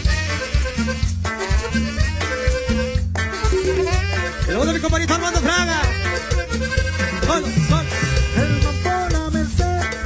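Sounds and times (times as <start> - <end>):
regular drum beat: 0.0 - 10.0
saxophone melody with sliding notes: 0.0 - 10.0
steady bass line: 0.0 - 10.0.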